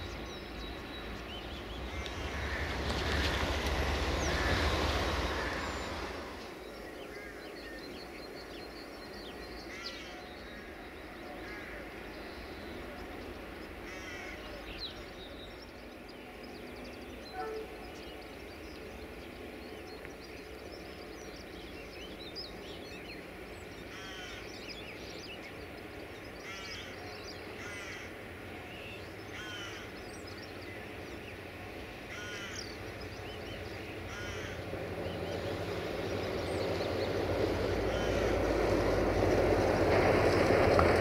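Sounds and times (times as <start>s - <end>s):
birds calling harshly: 0.0s - 7.9s, 13.8s - 15.1s, 22.7s - 41.0s.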